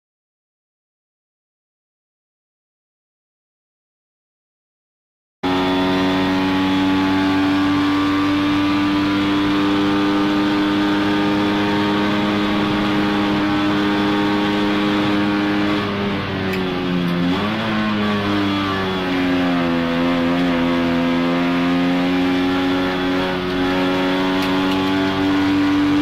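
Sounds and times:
two-stroke car engine revving: 0:05.4 - 0:26.0.

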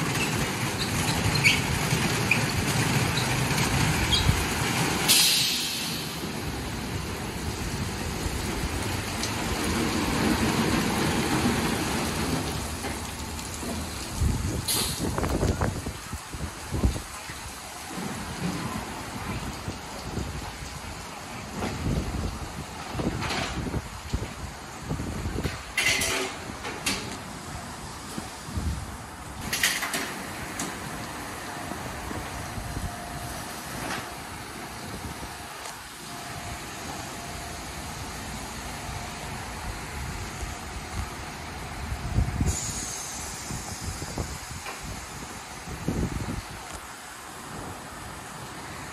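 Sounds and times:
hissing bursts: 0:00.0 - 0:12.8, 0:29.4 - 0:48.6
car wash machine running: 0:00.0 - 0:15.1, 0:29.4 - 0:48.9
water spray: 0:00.7 - 0:20.4, 0:29.5 - 0:48.9
hissing burst: 0:03.3 - 0:08.7, 0:42.2 - 0:45.3.

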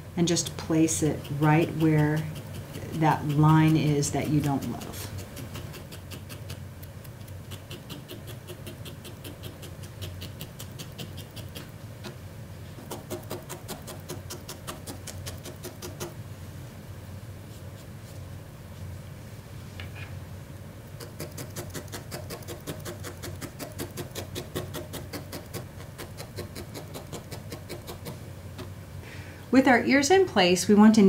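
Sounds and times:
felting needle poking wool: 0:00.7 - 0:11.7, 0:12.8 - 0:16.2, 0:21.0 - 0:28.7.

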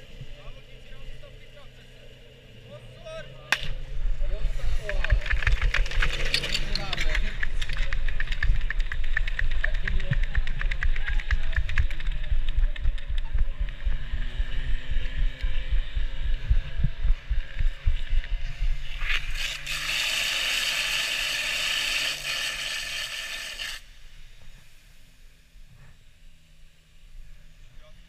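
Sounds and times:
motor hum: 0:00.0 - 0:28.0
heavy running thumps: 0:07.5 - 0:18.8
water jet hissing: 0:18.7 - 0:23.9.

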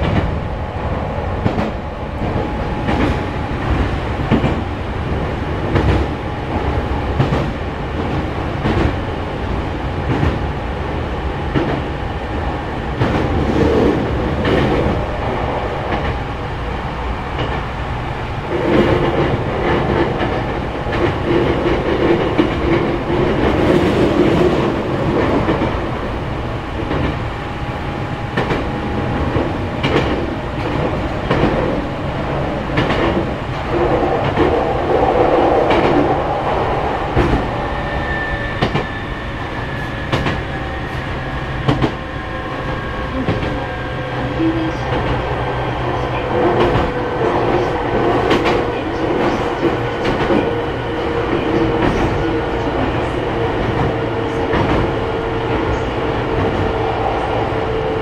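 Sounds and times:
train rumble and whine: 0:00.0 - 0:58.0.

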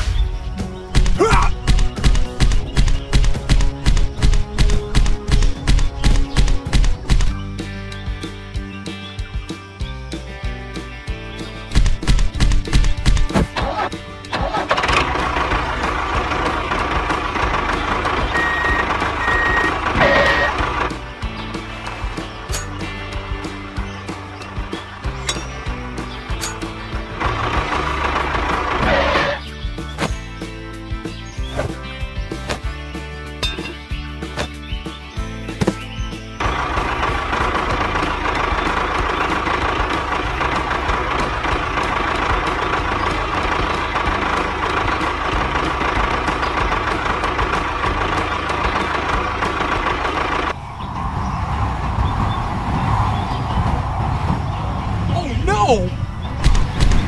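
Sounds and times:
vehicle engine running: 0:00.0 - 0:55.2
reversing alarm beeping: 0:18.3 - 0:20.6.

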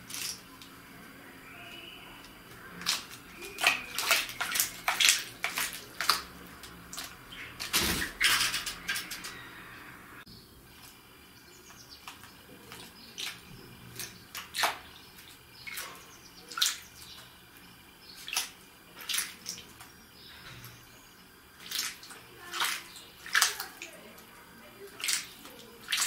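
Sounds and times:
bird splashing in water: 0:01.6 - 0:09.4, 0:12.0 - 0:19.9, 0:21.5 - 0:26.0.

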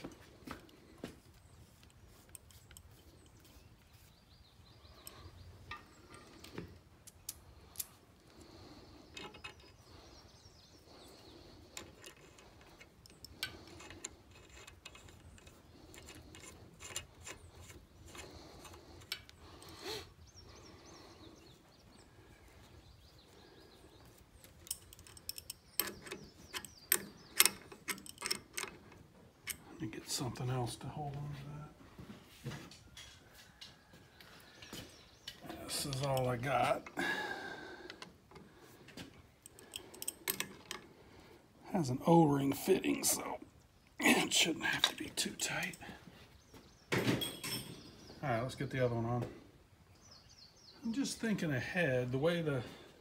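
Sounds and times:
small metallic clicks: 0:05.0 - 0:08.4, 0:09.1 - 0:10.1, 0:11.1 - 0:19.8, 0:24.4 - 0:29.7, 0:39.4 - 0:40.9.

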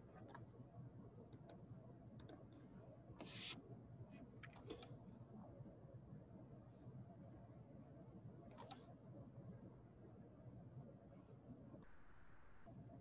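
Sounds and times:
computer mouse clicks: 0:01.3 - 0:01.6, 0:02.2 - 0:02.6, 0:04.4 - 0:05.0, 0:08.5 - 0:08.9.

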